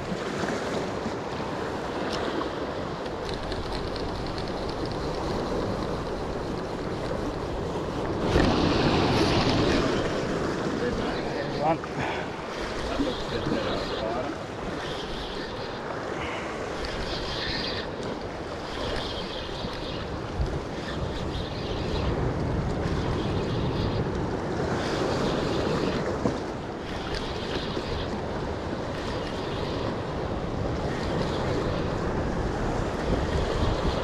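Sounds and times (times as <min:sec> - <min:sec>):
surf washing against rocks: 0:00.0 - 0:34.0
wind buffeting microphone: 0:03.2 - 0:34.0.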